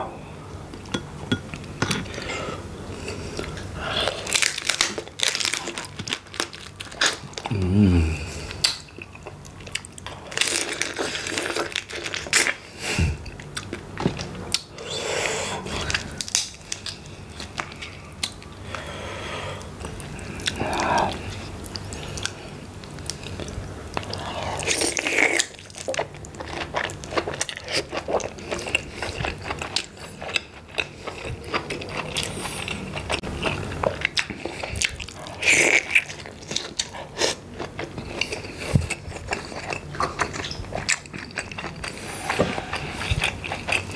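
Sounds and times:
chewing prawn: 23.1s - 43.9s.

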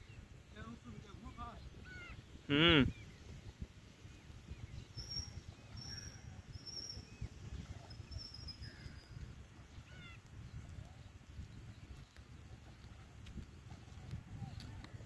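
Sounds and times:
wind rumble on microphone: 0.0s - 15.0s
faint bird chirps: 4.5s - 11.1s.

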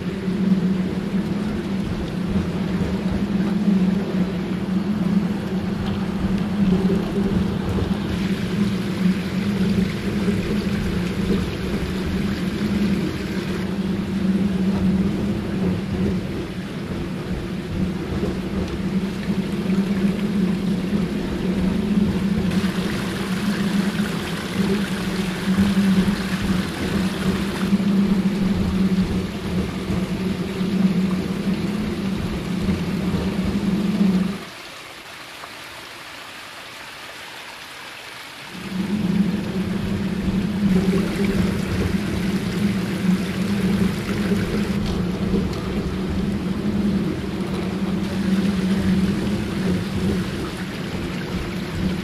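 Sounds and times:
small waterfall splashing: 5.7s - 13.8s, 22.4s - 29.9s, 34.3s - 52.0s.

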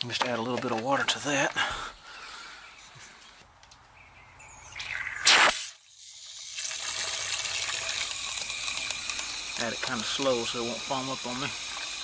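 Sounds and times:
water from hose nozzle rushing: 5.0s - 12.0s
water gushing into plastic tank: 6.0s - 12.0s.

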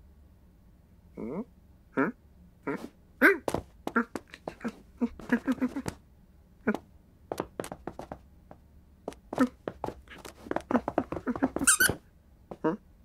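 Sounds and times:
light taps: 6.7s - 8.2s
shrill squeal: 11.6s - 12.0s.

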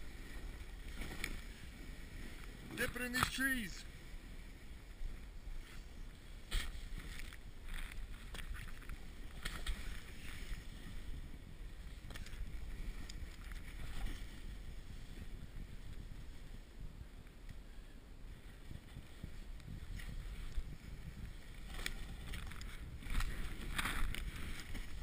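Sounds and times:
wind rumble on microphone: 0.0s - 25.0s
snowboard scraping: 3.9s - 8.3s, 9.0s - 13.0s.

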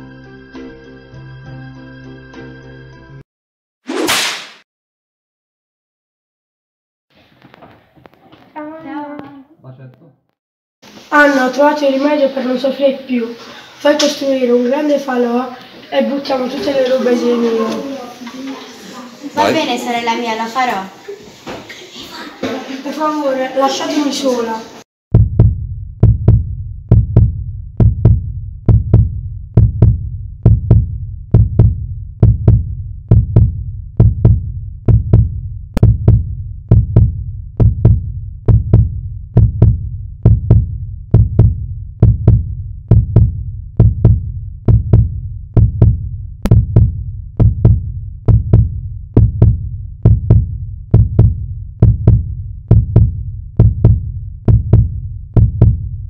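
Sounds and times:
heartbeat thumps: 25.1s - 56.0s.

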